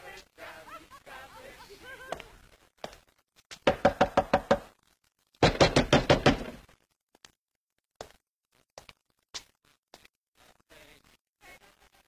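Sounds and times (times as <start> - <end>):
rapid knocking on door: 3.6 - 4.7, 5.4 - 6.6.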